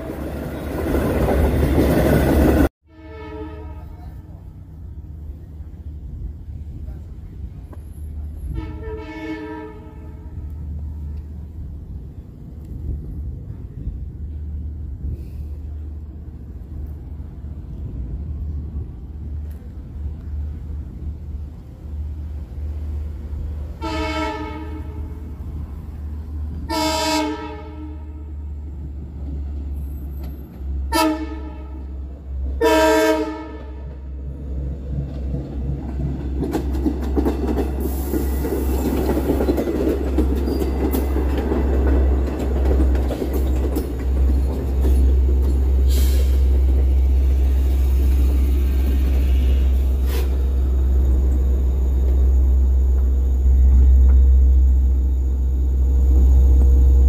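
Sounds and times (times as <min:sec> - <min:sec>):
train rumble: 0:00.0 - 0:57.0
train horn blasts: 0:02.8 - 0:04.6, 0:08.4 - 0:11.3, 0:23.8 - 0:25.3, 0:26.6 - 0:28.6, 0:30.8 - 0:34.1, 0:48.9 - 0:51.0
wheels clicking over rail joints: 0:34.6 - 0:53.1.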